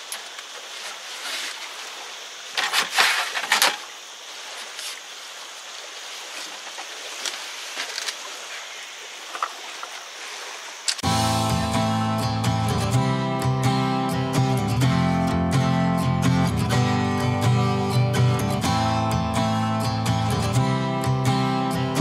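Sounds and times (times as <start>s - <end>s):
steady background hiss: 0.0s - 14.2s
acoustic guitar music: 11.0s - 22.0s.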